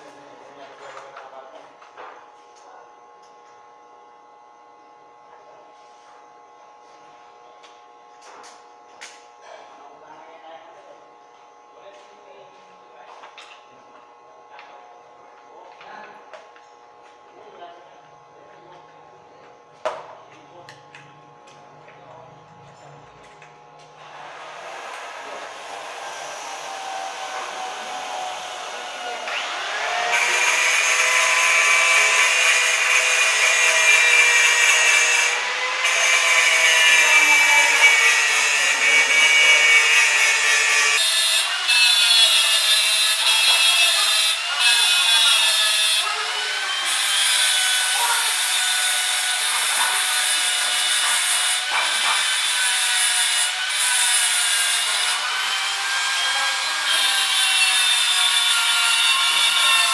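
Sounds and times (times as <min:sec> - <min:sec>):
angle grinder motor whine: 0:13.1 - 0:59.9.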